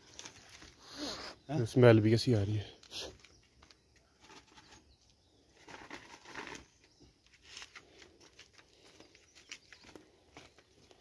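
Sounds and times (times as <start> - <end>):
rustles and scuffs on dirt: 3.1 - 11.0.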